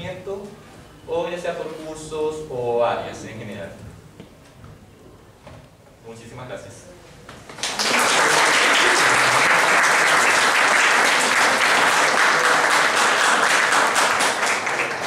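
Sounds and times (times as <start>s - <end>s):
audience applauding: 7.5s - 15.0s.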